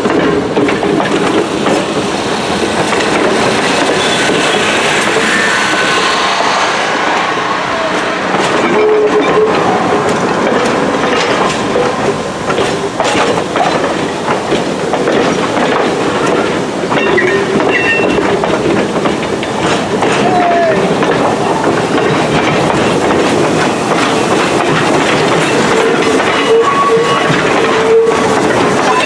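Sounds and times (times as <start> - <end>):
train wheels clacking over rail joints: 0.0 - 29.0
wheel squeals: 3.8 - 6.6, 17.0 - 18.2, 25.4 - 29.0.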